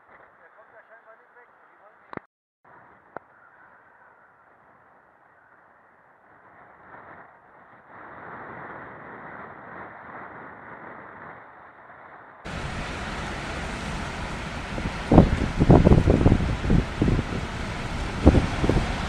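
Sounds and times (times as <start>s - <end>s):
storm wind: 6.5s - 19.0s
surf breaking: 12.5s - 19.0s.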